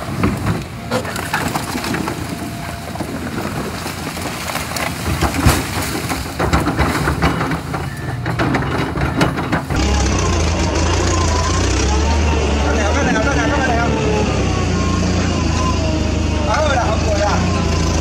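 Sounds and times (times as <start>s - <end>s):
car metal crunching: 0.0s - 11.1s
excavator engine running: 0.0s - 18.0s.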